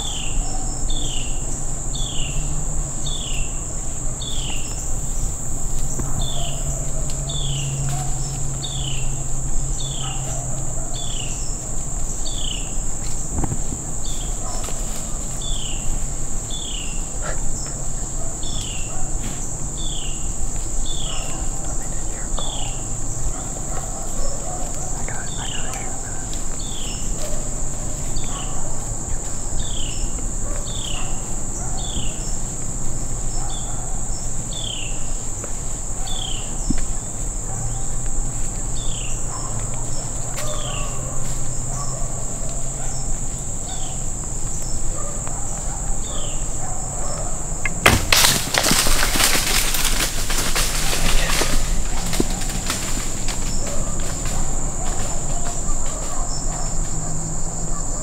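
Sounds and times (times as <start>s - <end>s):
insect drone: 0.0s - 58.0s
sharp snap: 47.6s - 48.8s
deer crashing through brush: 47.7s - 56.1s.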